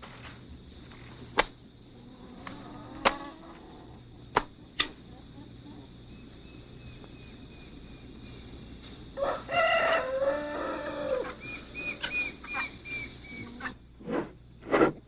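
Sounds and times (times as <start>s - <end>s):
small bird chirping: 5.0s - 9.0s, 11.2s - 13.8s
rooster crowing: 9.2s - 12.0s.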